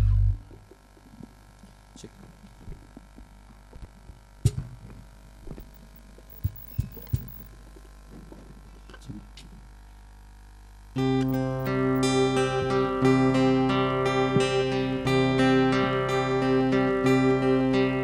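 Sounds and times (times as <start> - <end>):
low electrical hum: 0.0 - 18.0
soft thumps and knocks: 2.5 - 8.5.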